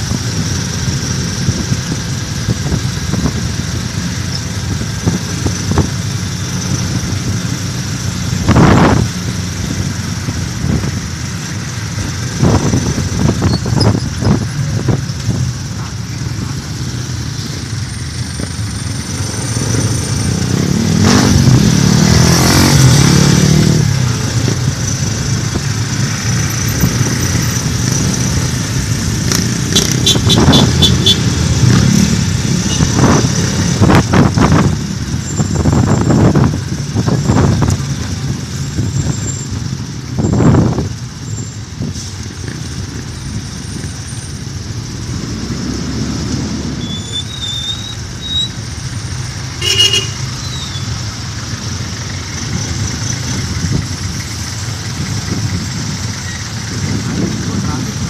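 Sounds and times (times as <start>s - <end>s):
vehicles rushing past: 0.0s - 58.0s
motorcycle engine running: 23.9s - 41.2s
short horn toots: 49.6s - 50.3s.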